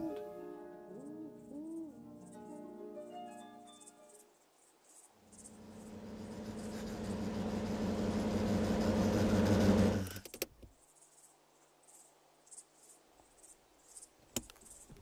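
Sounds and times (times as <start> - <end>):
crickets chirping: 0.4 - 9.0, 10.0 - 15.0
propeller plane engine drone: 5.3 - 10.1.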